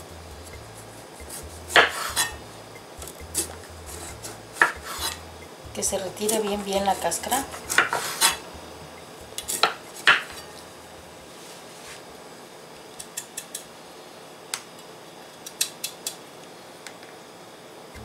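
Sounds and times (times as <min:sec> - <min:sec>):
knife clicking while peeling: 0:13.0 - 0:13.7, 0:15.4 - 0:16.2.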